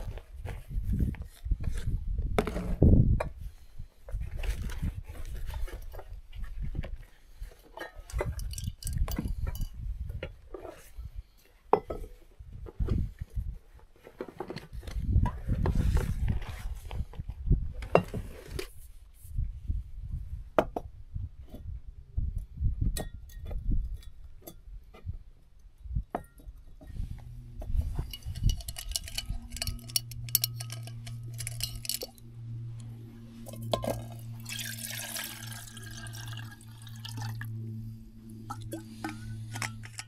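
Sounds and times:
clinks of cooking gear: 7.8 - 9.8, 28.1 - 32.2
steady low hum: 19.4 - 40.0
water pouring into kettle: 34.4 - 37.5.

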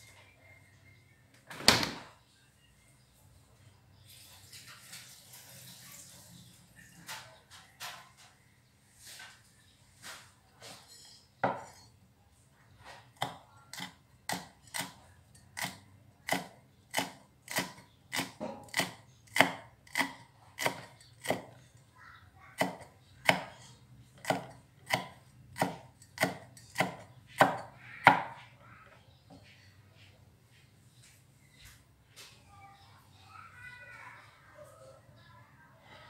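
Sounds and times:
knife chopping on wooden block: 15.6 - 21.5, 22.6 - 23.6, 24.2 - 28.3.

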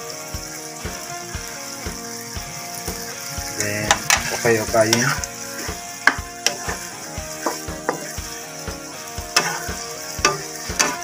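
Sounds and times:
frying sizzle in a wok: 0.0 - 11.0
spatula knocking against pan: 3.9 - 8.2, 9.3 - 11.0.

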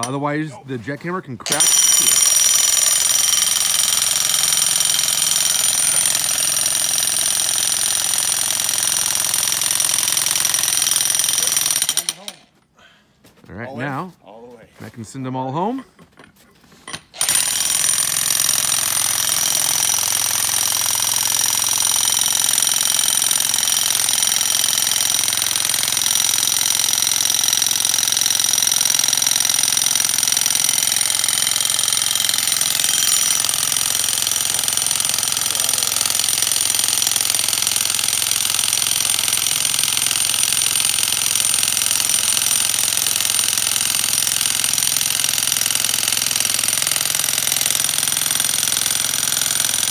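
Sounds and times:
electric jackhammer: 1.5 - 12.5, 16.9 - 49.9.

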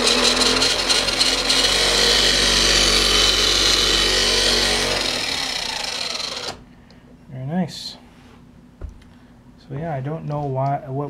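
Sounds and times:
electric motor whirring: 0.0 - 6.6.

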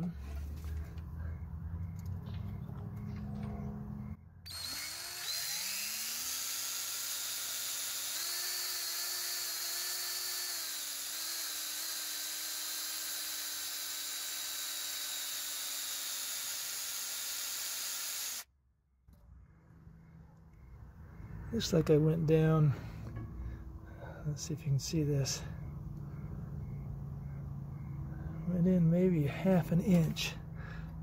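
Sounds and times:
electric drill boring: 4.5 - 18.5.

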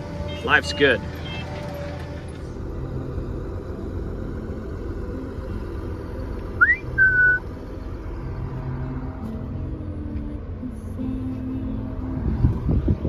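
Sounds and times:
low vehicle rumble: 0.0 - 13.0
short rising whistle: 6.6 - 7.4.

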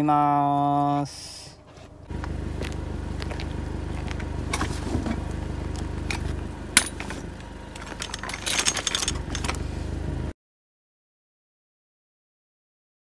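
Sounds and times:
car engine idling: 0.0 - 10.3
metal frame clicks and rattles: 6.1 - 9.6.

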